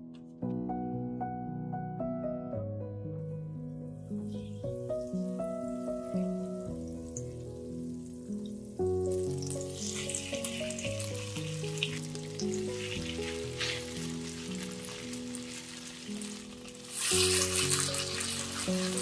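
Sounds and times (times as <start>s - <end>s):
soft background music: 0.0s - 19.0s
food sizzling in a frying pan: 4.2s - 19.0s.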